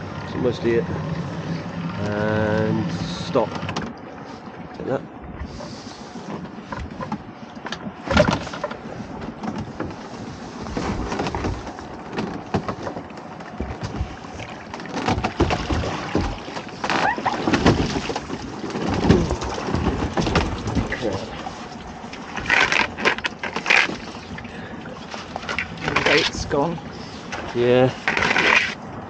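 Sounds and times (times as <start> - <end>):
water splashing and streaming: 0.0 - 29.0.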